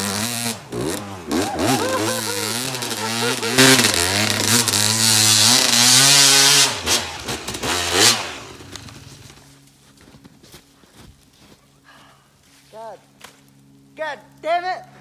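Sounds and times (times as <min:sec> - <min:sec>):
dirt bike engine revving: 0:00.0 - 0:09.6.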